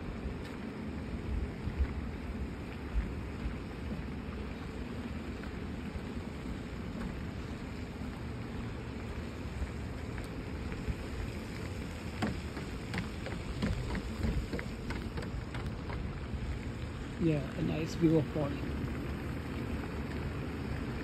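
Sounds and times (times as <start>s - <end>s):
wind rumble on microphone: 0.0s - 21.0s
footsteps on wooden decking: 11.8s - 16.2s.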